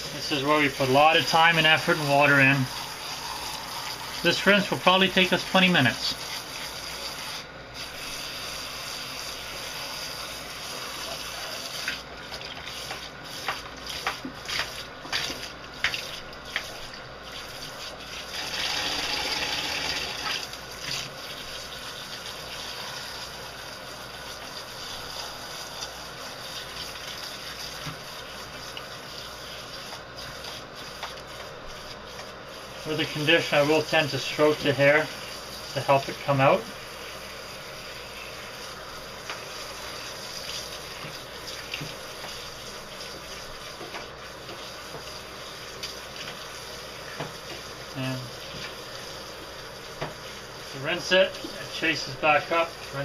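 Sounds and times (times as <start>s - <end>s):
shower spray running: 0.0s - 53.0s
hand rubbing wet dog hair: 0.1s - 18.4s, 20.4s - 53.0s.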